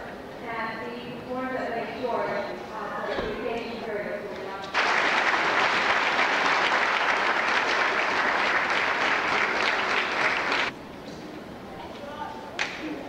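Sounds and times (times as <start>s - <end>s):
audience applauding: 4.7s - 10.7s.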